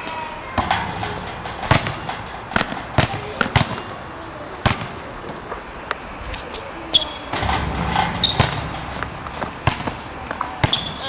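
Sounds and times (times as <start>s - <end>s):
basketball bouncing on court: 0.6s - 3.9s, 4.6s - 5.0s, 7.3s - 11.0s.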